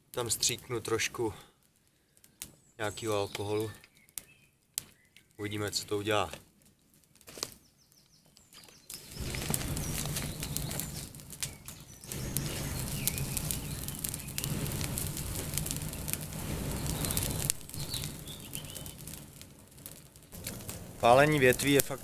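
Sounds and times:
twigs crackling in fire: 0:00.0 - 0:22.0
fluttering rumble of flame: 0:08.6 - 0:22.0.

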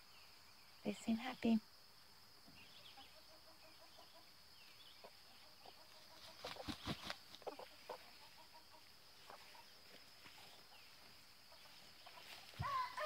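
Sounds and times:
chickens clucking: 0:02.6 - 0:13.0.

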